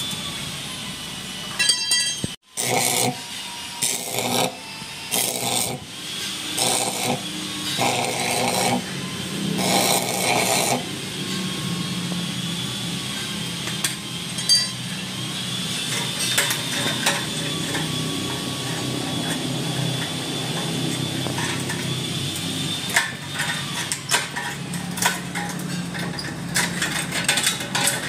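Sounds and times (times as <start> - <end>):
metal clinks and taps of tools: 1.6 - 2.4, 13.7 - 14.8.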